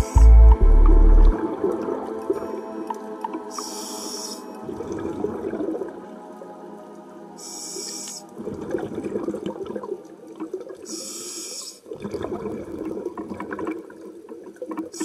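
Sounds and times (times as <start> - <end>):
exhaled bubbles underwater: 0.6 - 6.4, 8.3 - 15.0
regulator inhalation hiss: 3.5 - 4.5, 7.4 - 8.3, 10.9 - 11.8.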